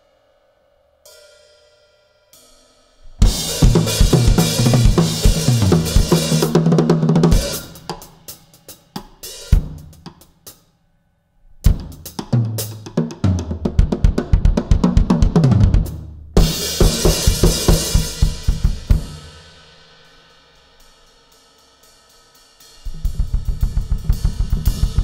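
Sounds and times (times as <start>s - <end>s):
bass drum hits: 22.9s - 25.0s.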